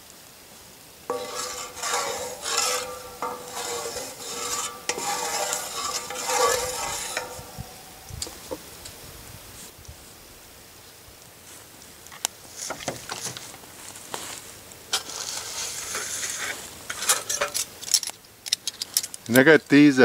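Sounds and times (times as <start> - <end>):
hot oil sizzling in a skillet: 0.0 - 12.8
stirring in a pan: 1.1 - 8.8, 14.9 - 17.8.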